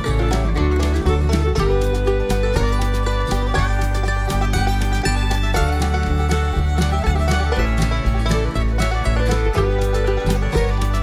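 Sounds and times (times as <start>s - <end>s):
bluegrass music with plucked strings: 0.0s - 11.0s.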